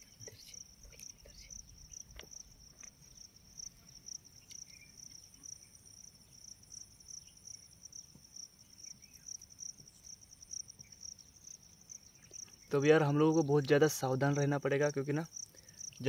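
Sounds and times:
crickets chirring: 0:00.0 - 0:16.0.

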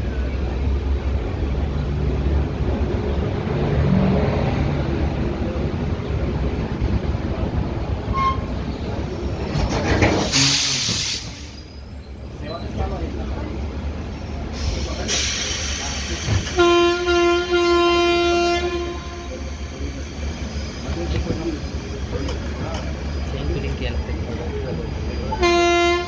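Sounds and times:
train running with low rumble: 0:00.0 - 0:26.0
loud air hiss: 0:10.2 - 0:11.7, 0:14.5 - 0:16.6.

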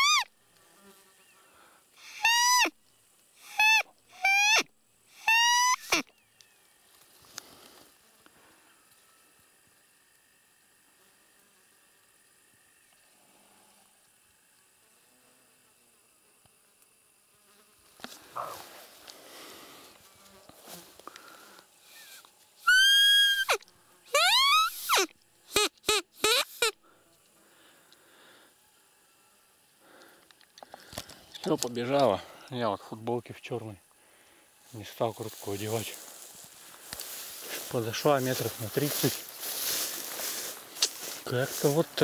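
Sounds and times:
insects buzzing: 0:00.0 - 0:42.0
soft rustling: 0:34.7 - 0:42.0.

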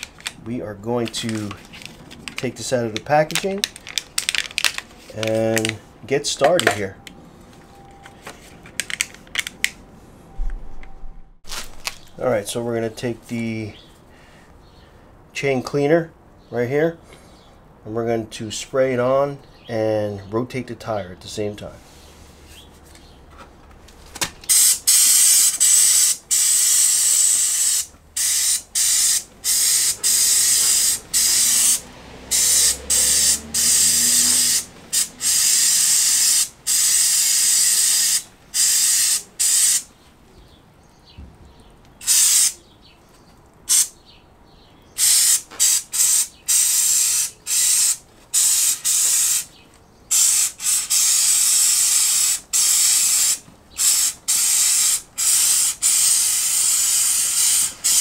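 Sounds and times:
aerosol spray hissing: 0:24.5 - 0:39.9, 0:42.0 - 0:42.6, 0:45.0 - 0:49.5, 0:50.1 - 0:58.0.

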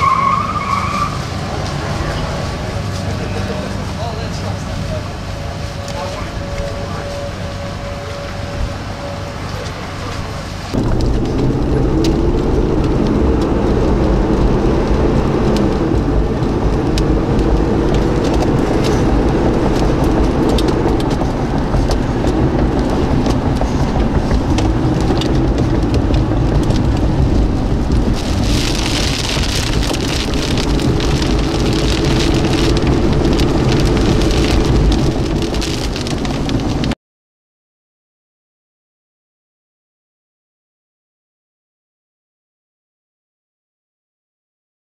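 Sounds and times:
car engine and road noise: 0:00.0 - 0:37.0
hiss of rain on wet road: 0:00.5 - 0:37.0
raindrops ticking on windshield: 0:10.8 - 0:37.0.

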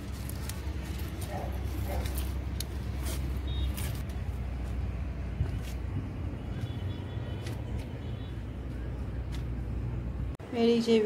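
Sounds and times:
plants rustling when handled: 0:00.0 - 0:06.0
low outdoor rumble and hum: 0:00.0 - 0:11.0.

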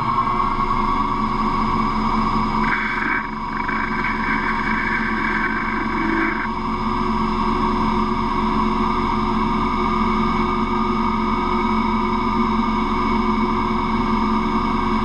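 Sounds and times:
metal lathe whining: 0:00.0 - 0:06.7.

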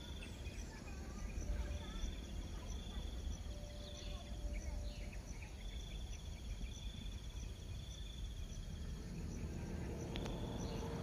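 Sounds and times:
cricket trilling: 0:00.0 - 0:11.0
steady low rumble: 0:00.0 - 0:11.0.

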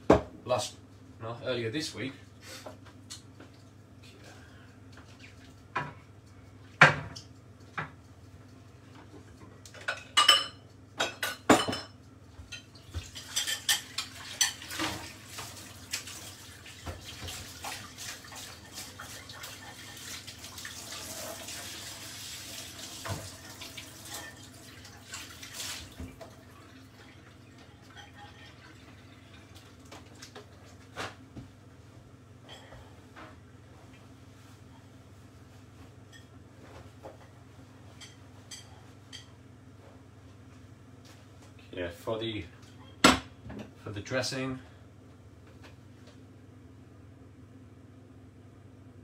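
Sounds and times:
dishes and cutlery clattering: 0:09.8 - 0:15.1, 0:27.9 - 0:28.6
tap running into sink: 0:22.8 - 0:23.8.

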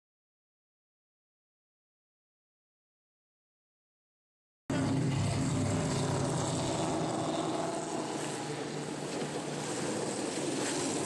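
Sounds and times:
outboard motor running: 0:04.7 - 0:11.0
rush of wind and water: 0:04.7 - 0:11.0.

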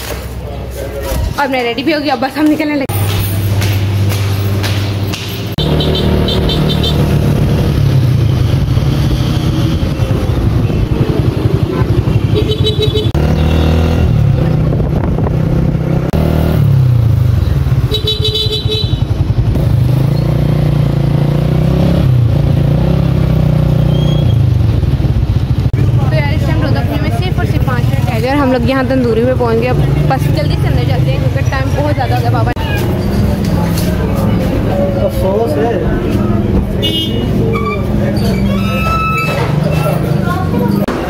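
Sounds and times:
horns beeping: 0:04.4 - 0:14.3, 0:17.7 - 0:19.3, 0:36.3 - 0:40.1.

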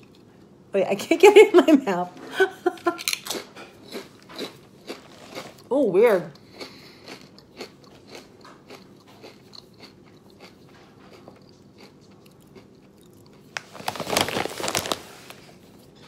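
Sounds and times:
potato chip crunching and chewing: 0:02.8 - 0:16.0
rustling and crackling: 0:13.6 - 0:16.0.

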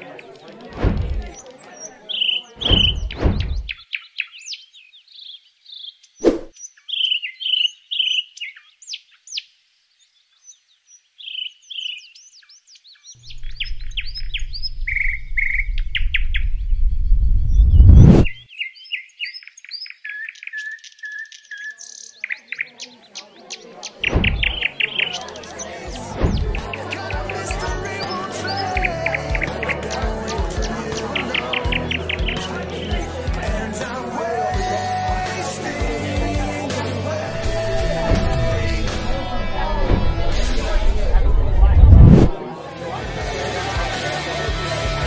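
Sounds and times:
songbirds chirping: 0:00.0 - 0:45.0
low rumble: 0:00.8 - 0:01.4, 0:02.6 - 0:03.8, 0:13.4 - 0:18.4, 0:24.1 - 0:24.6, 0:26.1 - 0:26.7, 0:37.4 - 0:42.4
short thumps: 0:00.8 - 0:01.4, 0:02.6 - 0:03.8, 0:17.6 - 0:18.4, 0:24.0 - 0:24.7, 0:26.1 - 0:26.7, 0:37.4 - 0:42.4.

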